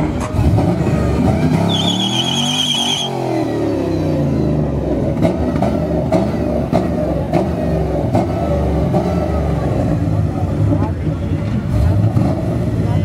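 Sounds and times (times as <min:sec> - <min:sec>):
car engine revving hard: 0:00.4 - 0:04.2, 0:11.7 - 0:13.0
tyre squeal: 0:01.6 - 0:03.2.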